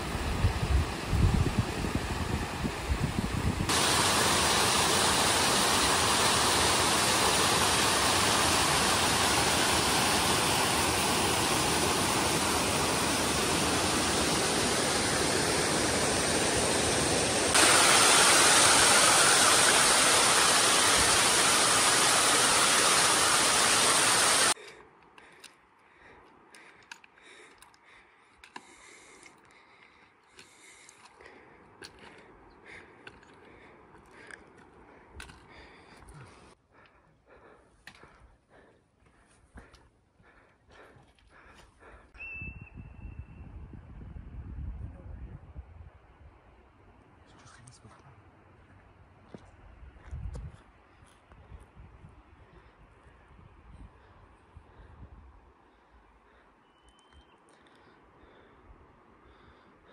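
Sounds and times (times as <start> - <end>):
stream rushing over rocks: 3.7 - 24.6.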